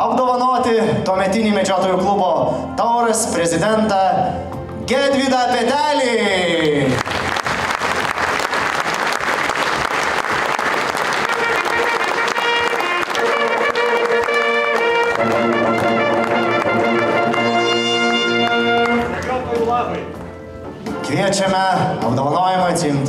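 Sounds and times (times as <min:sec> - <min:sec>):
audience applauding: 0:06.6 - 0:19.7
hunting horns fanfare: 0:10.9 - 0:20.2.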